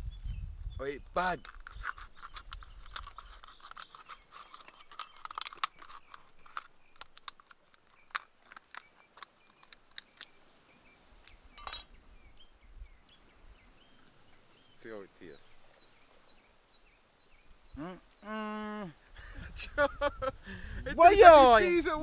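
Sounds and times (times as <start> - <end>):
machete scraping plastic cup: 1.4 - 9.8.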